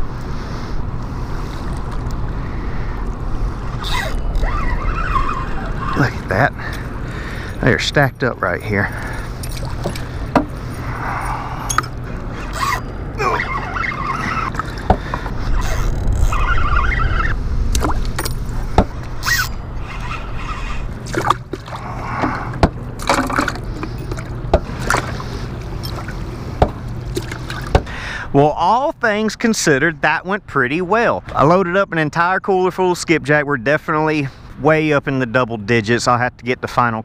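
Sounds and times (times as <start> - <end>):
low hum: 0.0 - 28.6
rushing water: 19.8 - 27.9.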